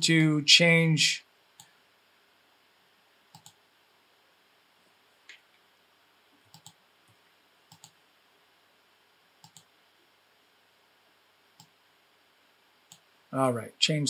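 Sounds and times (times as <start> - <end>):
computer mouse clicks: 3.3 - 3.6, 6.5 - 6.8, 7.7 - 8.0, 9.4 - 9.7, 11.6 - 11.8.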